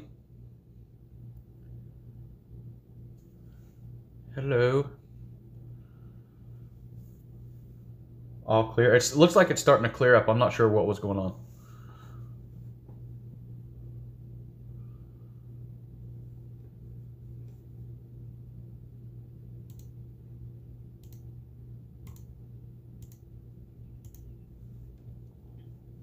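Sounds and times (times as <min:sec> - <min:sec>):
steady low hum: 0:00.0 - 0:26.0
sharp clicks: 0:19.6 - 0:20.0, 0:21.0 - 0:21.3, 0:22.0 - 0:22.3, 0:23.0 - 0:23.3, 0:24.0 - 0:24.3.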